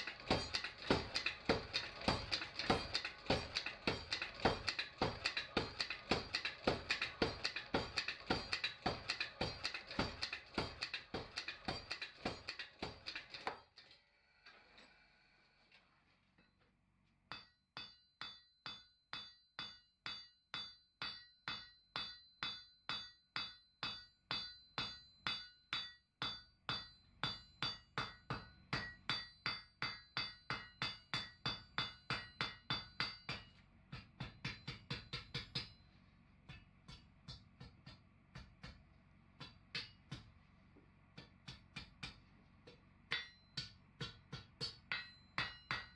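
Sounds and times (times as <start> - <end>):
hand hammer ringing on anvil: 0.0 - 13.4, 17.3 - 35.8, 43.1 - 45.9
power hammer striking steel: 0.0 - 13.6, 17.3 - 35.8, 36.5 - 38.8, 39.4 - 40.4, 41.2 - 45.9.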